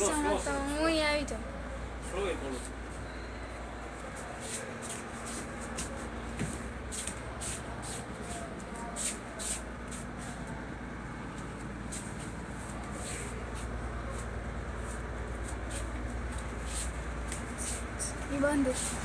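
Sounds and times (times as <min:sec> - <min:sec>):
soft rustles: 0:04.0 - 0:10.6, 0:11.2 - 0:19.0.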